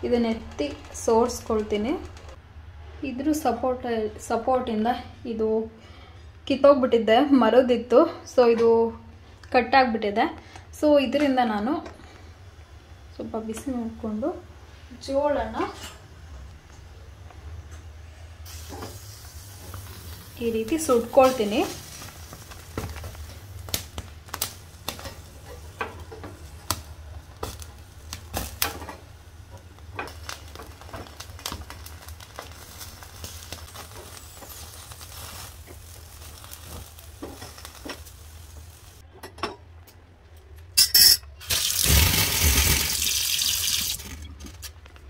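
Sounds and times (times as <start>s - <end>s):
gas flame humming: 16.7s - 39.0s, 40.8s - 45.0s
water hissing on hot metal: 18.4s - 25.9s, 30.0s - 39.0s, 41.4s - 44.2s
corn kernels crackling and popping: 18.5s - 39.0s, 41.4s - 45.0s.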